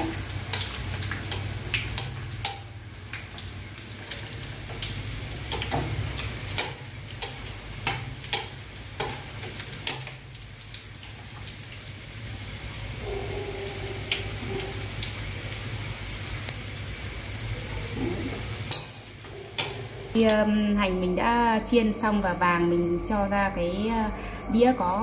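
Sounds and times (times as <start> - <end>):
oil popping and crackling: 0.0 - 13.0, 13.6 - 20.1
shallots sizzling in oil: 0.0 - 22.3.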